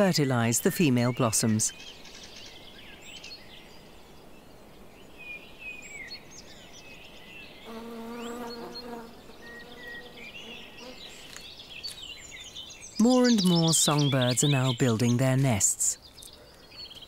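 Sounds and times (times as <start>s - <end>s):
birds chirping and singing: 0.0s - 17.0s
bumblebee buzzing in flight: 7.7s - 11.0s.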